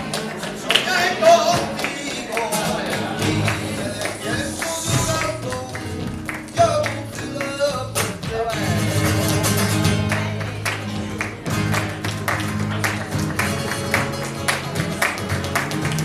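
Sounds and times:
acoustic guitar playing: 0:00.0 - 0:16.0
hand-clapping: 0:00.0 - 0:16.0
person singing: 0:00.4 - 0:11.9.

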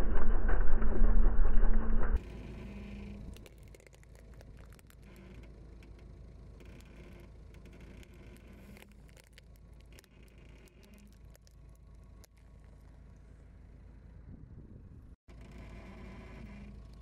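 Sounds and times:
low steady rumble: 0:00.0 - 0:17.0
rubber toys crackling under tyre: 0:03.2 - 0:06.0, 0:07.6 - 0:13.1.

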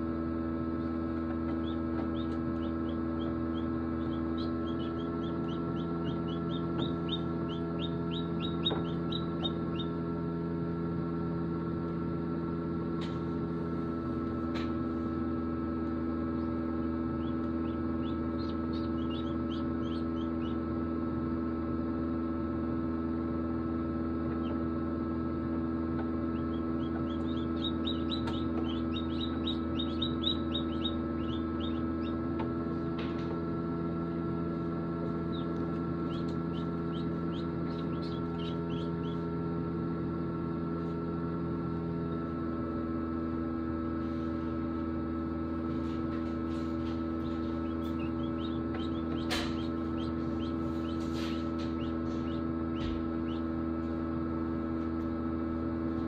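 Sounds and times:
egg incubator humming: 0:00.0 - 0:56.0
ducklings peeping: 0:01.5 - 0:10.0, 0:16.3 - 0:20.7, 0:26.2 - 0:32.4, 0:35.0 - 0:39.4, 0:46.5 - 0:53.6.

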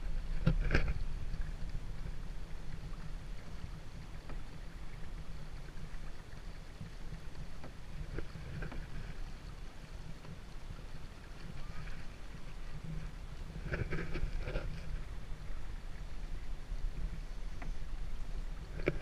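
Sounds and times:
low wind rumble on microphone: 0:00.0 - 0:19.0
water rushing along hull: 0:00.0 - 0:19.0.

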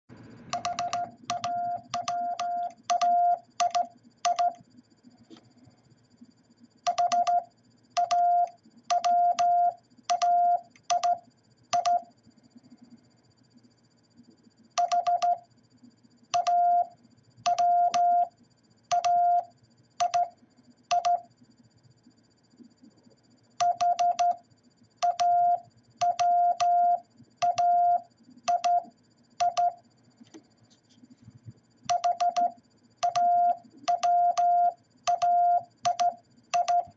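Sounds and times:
morse code tone: 0:31.9 - 0:36.9.

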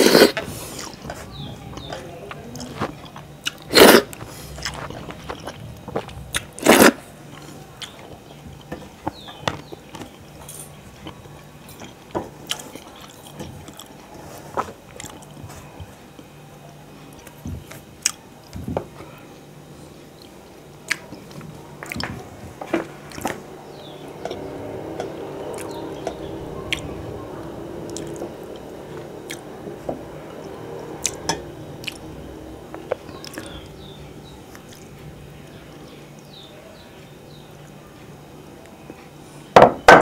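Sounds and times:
wet squishing of food by hand: 0:00.6 - 0:10.2.

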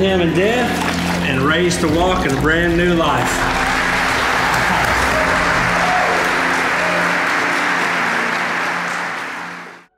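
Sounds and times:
held background music notes: 0:00.0 - 0:09.9
congregation applauding: 0:03.2 - 0:09.9.

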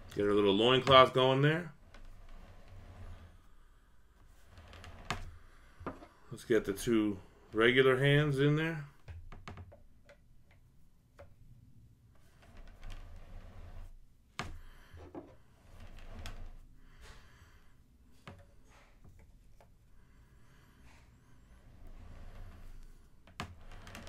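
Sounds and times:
faint clicks and taps: 0:09.0 - 0:11.4.

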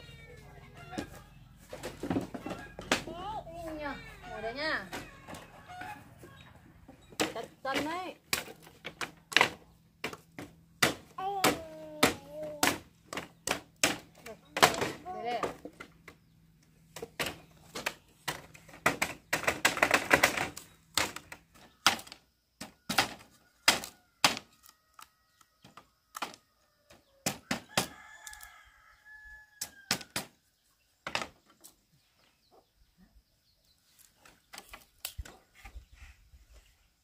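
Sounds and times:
chicken clucking: 0:04.3 - 0:06.8.

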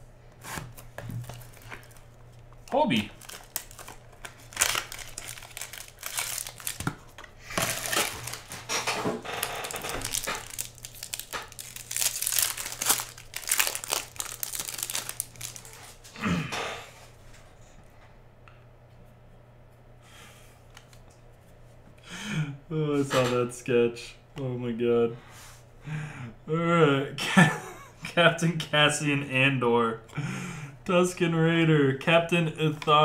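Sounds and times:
foil wrapper crinkling and tearing: 0:00.8 - 0:16.0.

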